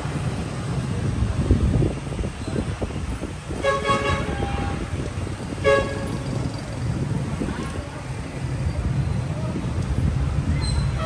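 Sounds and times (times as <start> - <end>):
street traffic rumble: 0.0 - 11.0
vehicle horn honking: 3.6 - 4.9, 5.6 - 6.2.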